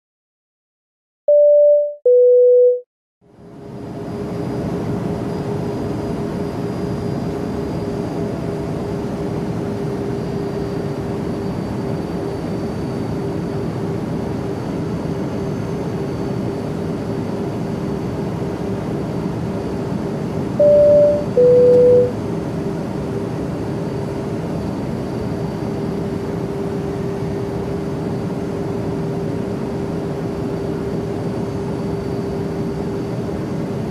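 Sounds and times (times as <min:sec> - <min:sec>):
two-tone cabin chime: 0:01.3 - 0:02.8, 0:20.6 - 0:22.1
jet cabin drone: 0:01.3 - 0:33.9
low hum: 0:20.6 - 0:22.1.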